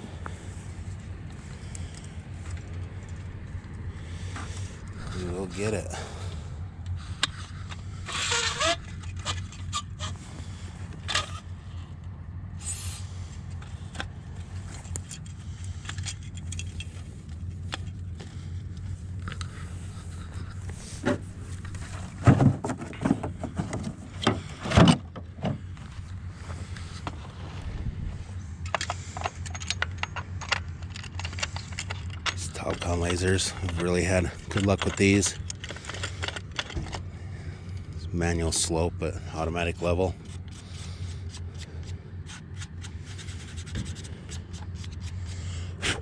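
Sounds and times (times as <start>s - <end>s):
engine idling: 0.0s - 46.0s
metal tripod clicks and rattles: 7.1s - 10.2s, 14.7s - 17.0s, 28.6s - 37.1s.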